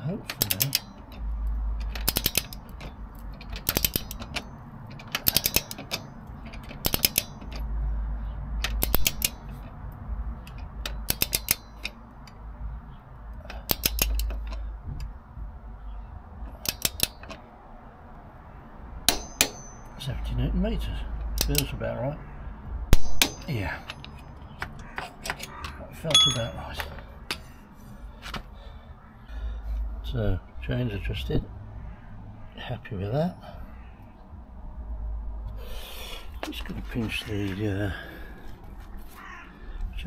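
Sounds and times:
torque wrench ratchet clicking: 1.8 - 2.8, 5.0 - 7.6, 13.6 - 14.5
sharp ringing click: 26.1 - 26.8.

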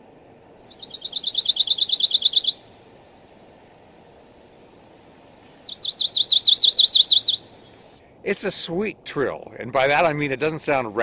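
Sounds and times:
bird singing a trill: 0.7 - 2.8, 5.6 - 7.8.

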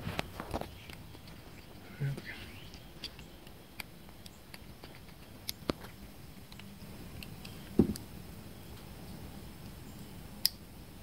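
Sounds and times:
small parts clicking and handling: 2.6 - 8.1.

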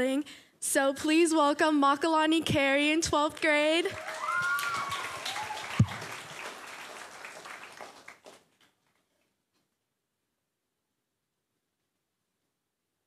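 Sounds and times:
audience applauding: 3.8 - 9.1
people whooping: 3.9 - 7.8.

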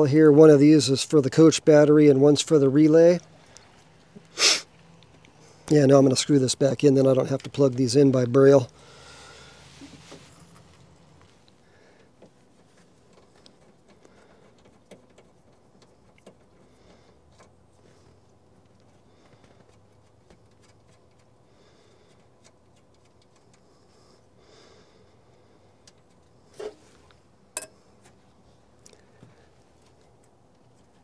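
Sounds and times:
small clicks and taps: 11.4 - 17.5.

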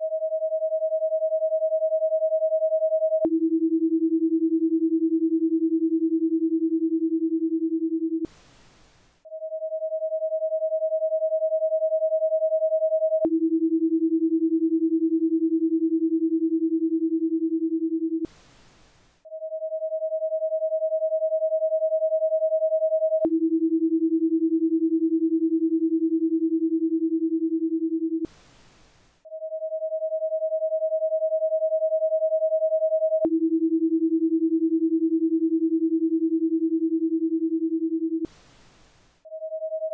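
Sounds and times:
faint hiss: 8.3 - 9.2, 18.3 - 19.2, 28.3 - 29.2, 38.3 - 39.2.

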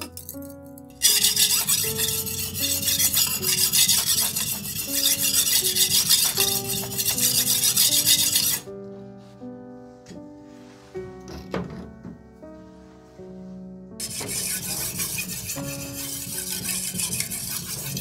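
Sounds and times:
slow piano music: 0.0 - 18.0
knife scraping on whetstone: 0.9 - 8.7, 14.0 - 18.0.

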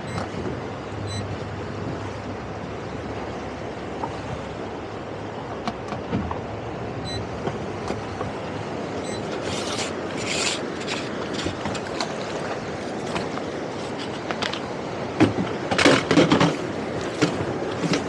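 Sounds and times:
outboard engine running: 0.0 - 18.0
water rushing past hull: 0.0 - 18.0
short high beeps: 7.0 - 7.2, 9.0 - 9.3.

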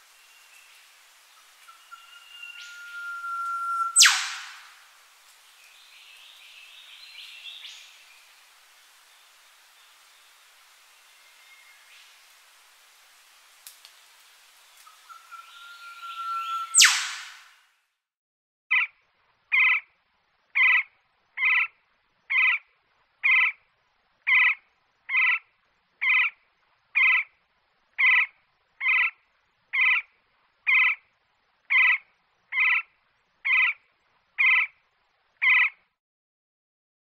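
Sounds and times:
woodpecker calling: 1.7 - 4.7, 15.0 - 17.4, 19.5 - 19.8, 20.6 - 21.7, 22.3 - 22.6, 23.2 - 23.6, 24.3 - 25.4, 26.0 - 26.3, 27.0 - 27.3, 28.0 - 29.2, 29.8 - 30.0, 30.7 - 31.0, 31.7 - 32.8, 33.5 - 33.8, 34.4 - 34.7, 35.4 - 35.8.

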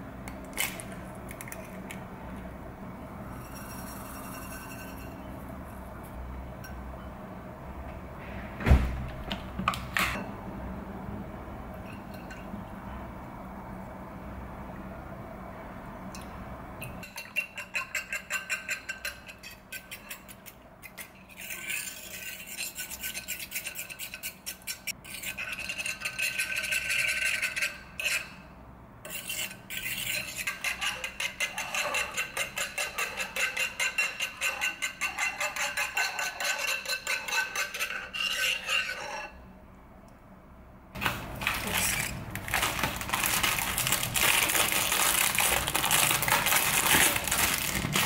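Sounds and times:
fork whisking eggs on plate: 17.0 - 28.3, 29.1 - 39.4.

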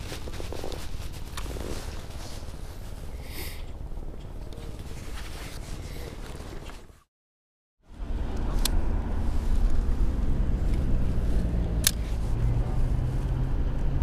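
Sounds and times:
clothing rustling: 0.0 - 7.1
low wind rumble on microphone: 7.9 - 14.0.

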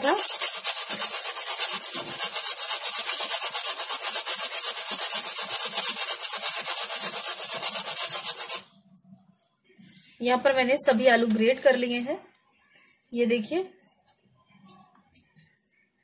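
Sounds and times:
potato grated on metal grater: 0.0 - 8.7.

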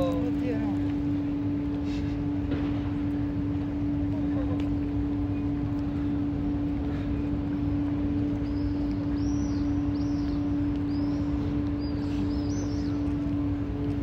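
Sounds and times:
low background rumble: 0.0 - 14.0
steady hum: 0.0 - 14.0.

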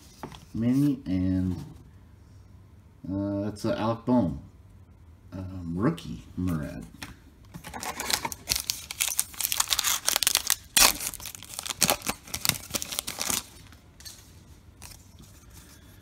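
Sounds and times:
foil wrapper crinkling: 7.6 - 14.2
foil ripping: 7.7 - 13.6.

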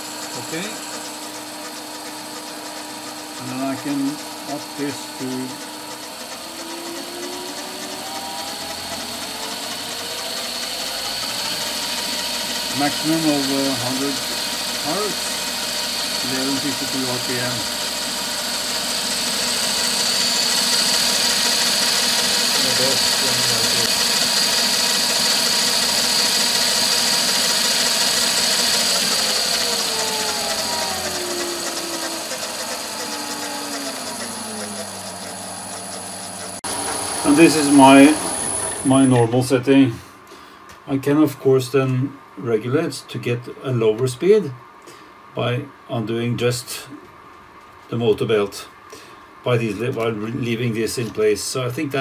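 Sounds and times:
lathe motor whine rising: 0.0 - 39.4
uneven gear noise: 19.9 - 39.2.

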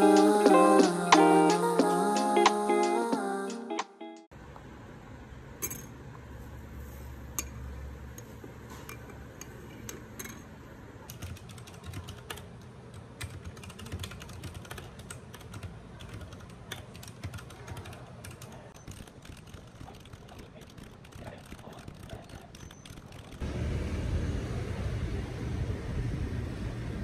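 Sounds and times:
typing on computer keyboard: 11.0 - 23.4.

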